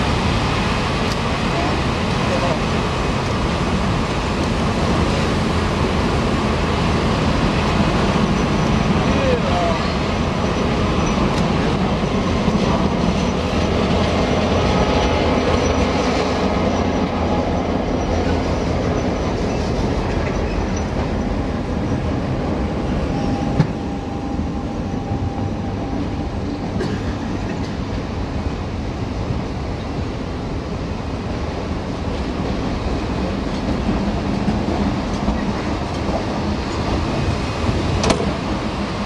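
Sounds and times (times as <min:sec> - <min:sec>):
diesel locomotive passing: 0:00.0 - 0:39.0
train wheels clattering over rail joints: 0:32.1 - 0:38.8.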